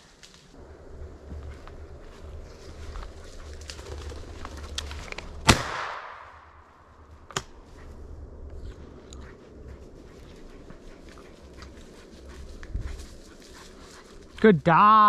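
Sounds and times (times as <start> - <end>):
faint sharp crack: 5.2 - 6.5
shotgun shot with echo: 5.5 - 6.4.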